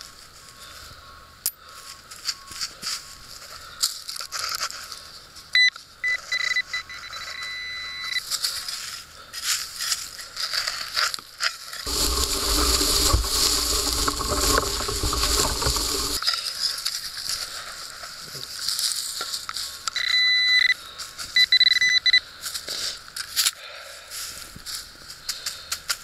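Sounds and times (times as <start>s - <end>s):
pinpointer beeps and tone: 5.6s - 8.2s, 20.0s - 20.8s, 21.4s - 22.2s
scraping in dry soil: 8.3s - 19.8s.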